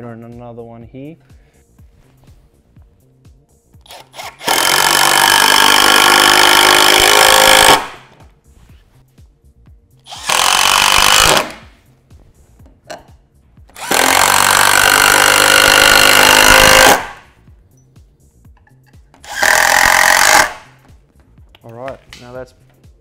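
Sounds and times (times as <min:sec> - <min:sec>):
cordless power driver driving screws: 0:03.8 - 0:08.0, 0:10.1 - 0:11.7, 0:13.8 - 0:17.2, 0:19.2 - 0:20.6.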